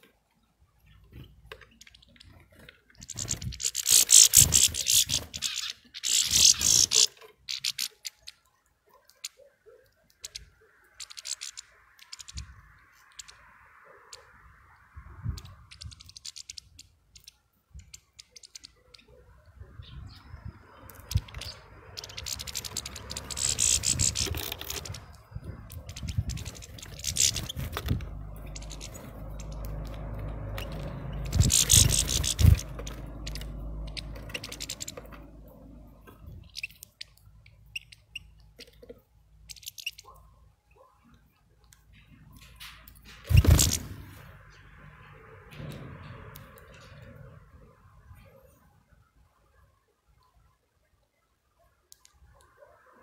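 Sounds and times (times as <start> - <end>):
bird wings fluttering: 3.0 - 7.1, 21.1 - 35.2, 43.1 - 44.3.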